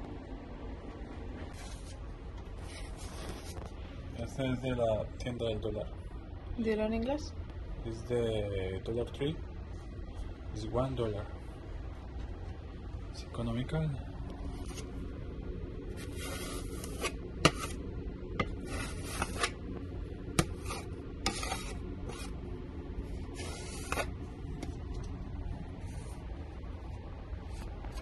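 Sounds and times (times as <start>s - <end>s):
putty knife scraping: 16.0s - 17.8s, 18.4s - 19.6s, 20.4s - 22.4s, 23.3s - 24.2s.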